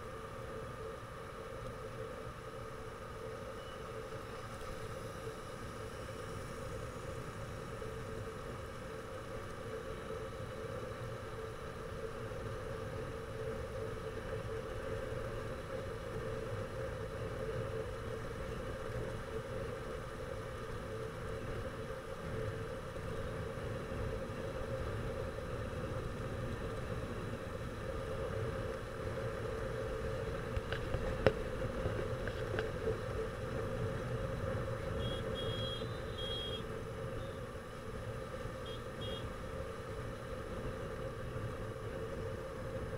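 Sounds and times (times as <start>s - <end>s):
wind and road noise: 0.0s - 42.9s
motorcycle engine hum: 2.7s - 42.9s
short high beeps: 35.0s - 36.6s.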